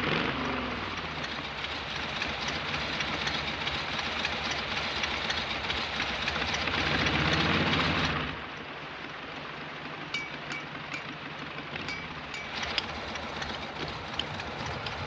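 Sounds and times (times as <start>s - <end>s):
motorcycle engines running: 0.0s - 15.0s.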